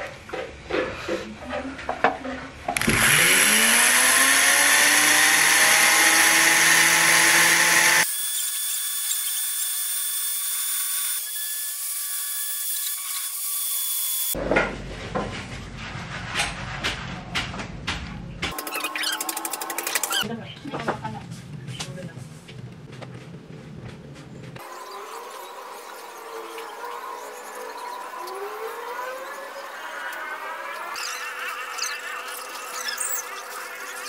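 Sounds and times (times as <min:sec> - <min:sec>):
rotary engraving tool whining: 0:02.8 - 0:14.4.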